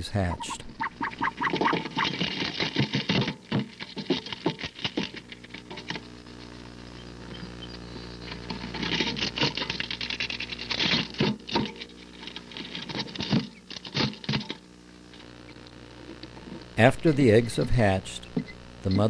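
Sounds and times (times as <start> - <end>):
low hum: 0.0 - 19.0
bird scratching in nest bedding: 0.8 - 15.4.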